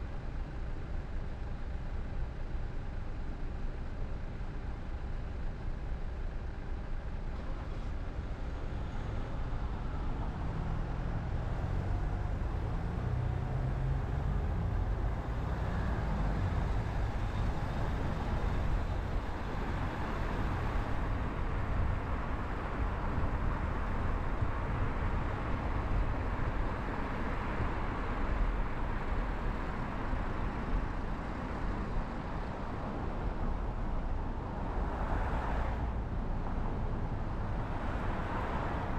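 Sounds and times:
car engine hum: 0:00.0 - 0:38.9
tyre and road noise: 0:07.2 - 0:38.9.

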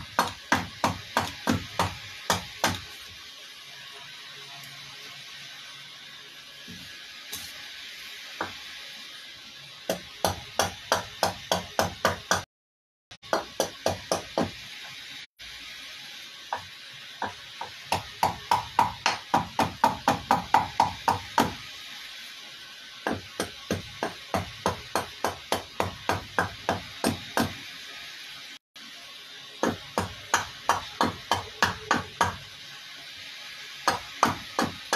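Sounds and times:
hatchet chopping wood: 0:00.0 - 0:02.9, 0:09.9 - 0:12.4, 0:13.2 - 0:14.6, 0:16.5 - 0:21.6, 0:23.0 - 0:27.6, 0:29.6 - 0:32.4, 0:33.9 - 0:34.9.

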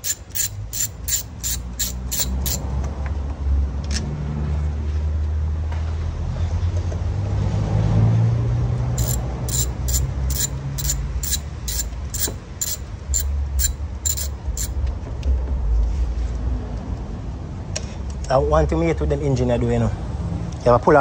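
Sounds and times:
hand ratchet clicking: 0:00.0 - 0:02.7, 0:09.0 - 0:14.8.

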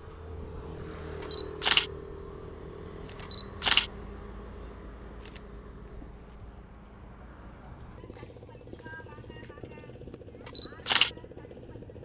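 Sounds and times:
camera beep: 0:01.2 - 0:01.9, 0:03.1 - 0:03.9, 0:10.5 - 0:11.1
camera shutter click: 0:01.2 - 0:01.9, 0:03.1 - 0:03.9, 0:10.5 - 0:11.1.

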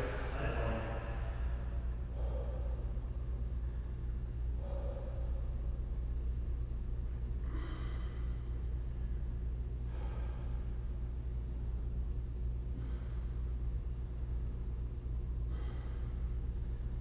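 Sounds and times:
steady low hum: 0:00.0 - 0:17.0
person breathing out hard: 0:01.0 - 0:05.6, 0:07.4 - 0:08.7, 0:09.8 - 0:11.0, 0:12.7 - 0:13.5, 0:15.5 - 0:16.4.

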